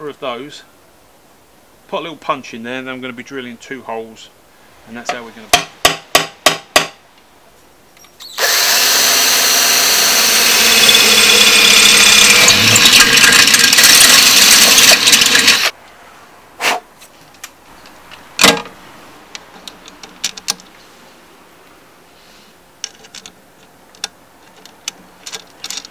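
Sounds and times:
cordless drill boring: 8.3 - 15.7.

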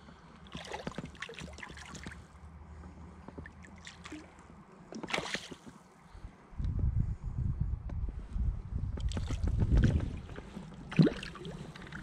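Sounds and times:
fish splashing in water: 0.5 - 2.3, 3.5 - 5.8, 10.8 - 12.0.

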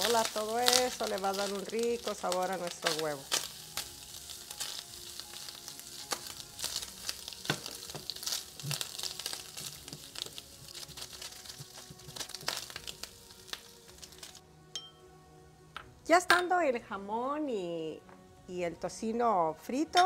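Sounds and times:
bacon sizzling and crackling: 0.0 - 14.4
spatula stirring: 0.0 - 14.4.

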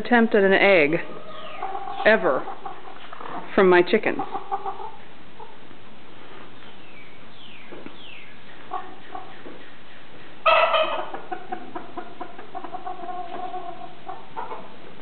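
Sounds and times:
chickens clucking: 0.6 - 15.0
chicken squawk: 1.0 - 3.5, 8.0 - 9.7, 10.4 - 14.8.

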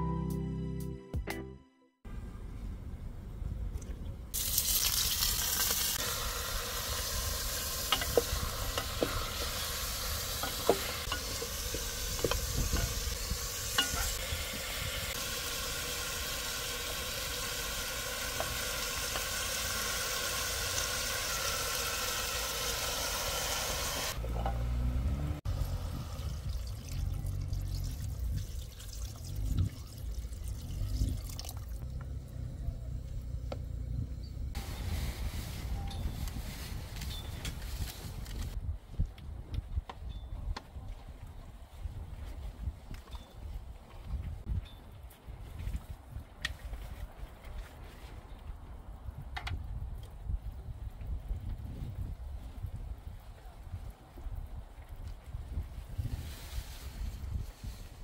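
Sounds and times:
meat sizzling in a pot: 4.4 - 24.2.

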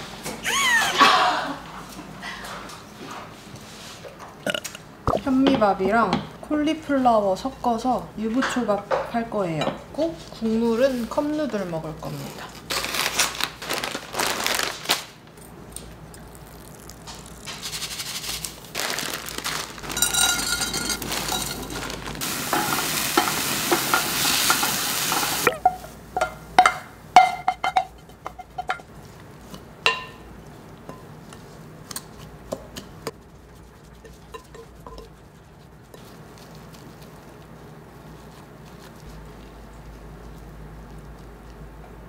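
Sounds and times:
food sizzling in a frying pan: 19.8 - 26.5.

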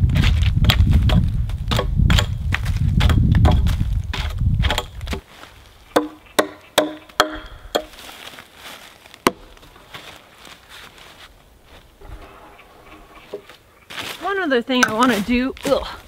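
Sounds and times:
chopping at wooden pole: 0.6 - 2.4, 3.0 - 4.9, 6.0 - 7.9
sharp woody chops: 0.7 - 2.4, 5.9 - 8.0.

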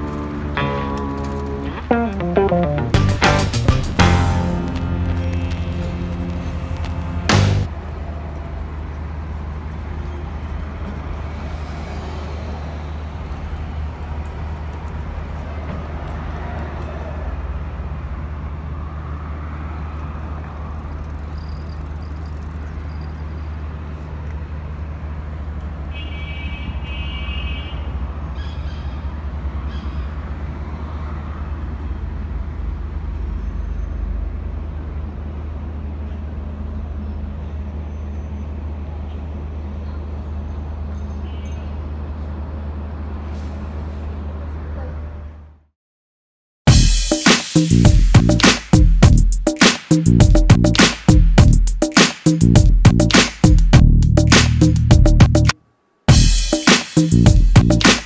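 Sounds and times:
road traffic rumble: 0.0 - 45.6, 46.7 - 58.0
high-pitched tone: 0.6 - 7.2.

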